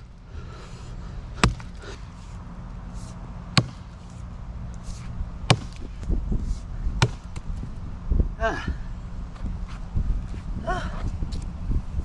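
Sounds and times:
axe chopping rotten wood: 0:01.4 - 0:01.9, 0:03.5 - 0:04.0, 0:05.4 - 0:06.1, 0:07.0 - 0:07.6.

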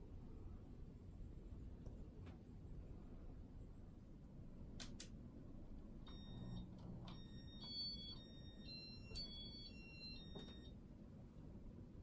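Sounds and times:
ceiling fan humming: 0:00.0 - 0:12.0
clicks: 0:04.8 - 0:05.2
electronic beeping tones: 0:06.1 - 0:10.7.

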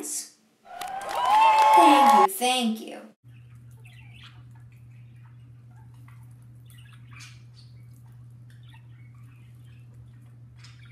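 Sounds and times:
steady low hum: 0:03.2 - 0:10.9
budgerigars chirping: 0:03.4 - 0:05.9, 0:06.6 - 0:10.9.

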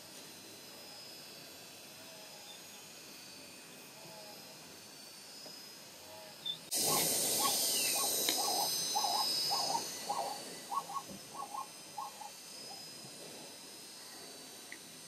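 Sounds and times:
animal hooting calls: 0:06.7 - 0:12.8.

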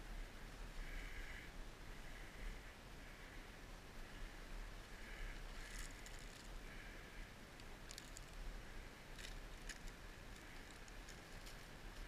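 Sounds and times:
rustling of leaf litter: 0:07.6 - 0:12.0.

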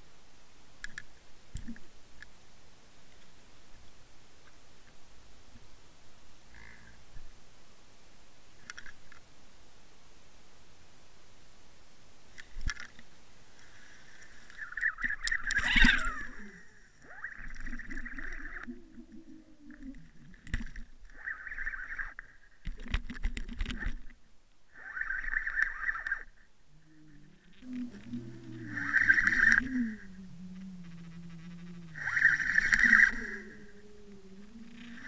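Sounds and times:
knocks and clicks underwater: 0:19.7 - 0:21.8, 0:22.6 - 0:24.2.

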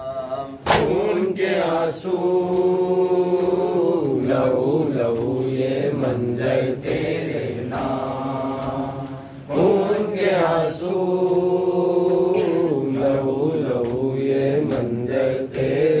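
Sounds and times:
chest slaps: 0:00.6 - 0:01.2.

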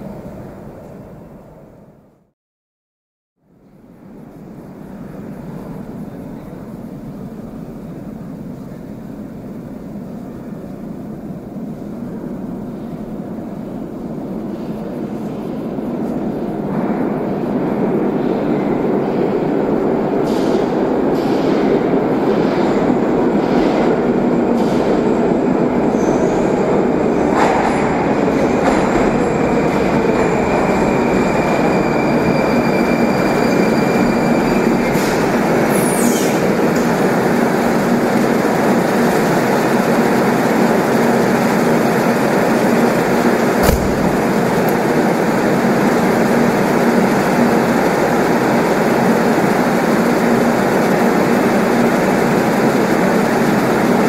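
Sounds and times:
train wheels and motors rumbling: 0:34.5 - 0:54.0
steady whine: 0:43.6 - 0:45.4.

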